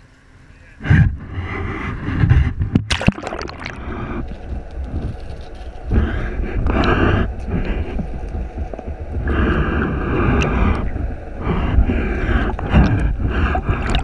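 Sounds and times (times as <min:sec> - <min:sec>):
muffled underwater rumble: 0:00.8 - 0:14.0
water splashing and gurgling: 0:02.8 - 0:04.3, 0:12.4 - 0:14.0.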